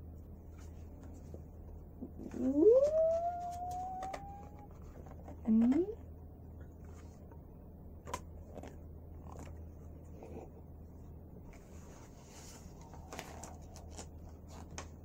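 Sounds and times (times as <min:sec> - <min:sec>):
low steady hum: 0:00.0 - 0:15.0
page turning rustle: 0:11.5 - 0:15.0.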